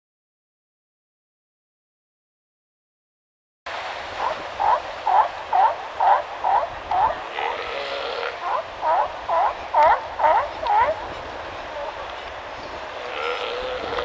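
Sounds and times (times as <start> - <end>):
surf washing: 3.7 - 14.0
sea lion barking: 4.2 - 12.0, 13.0 - 14.0.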